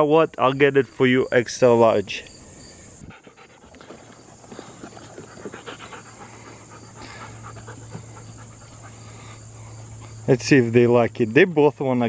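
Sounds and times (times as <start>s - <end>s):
crickets chirping: 0.0s - 12.0s
dogs panting: 3.0s - 10.3s.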